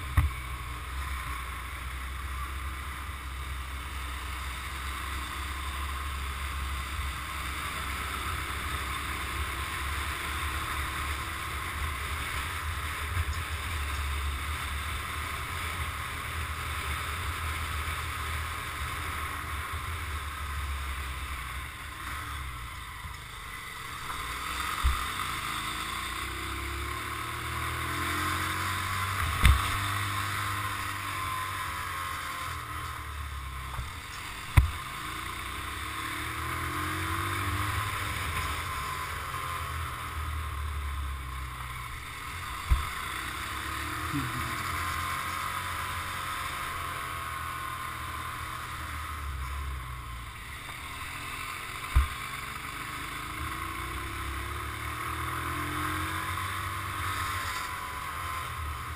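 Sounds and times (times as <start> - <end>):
motorcycle engine: 0.0 - 58.9
sharp knocks from bike mount: 0.1 - 0.4, 29.2 - 29.8, 34.5 - 34.8.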